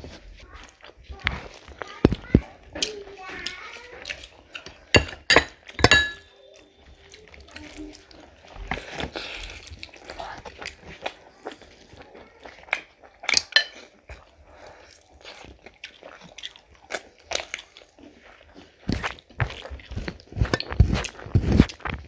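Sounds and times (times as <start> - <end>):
crunchy bites and chewing: 14.9 - 22.0.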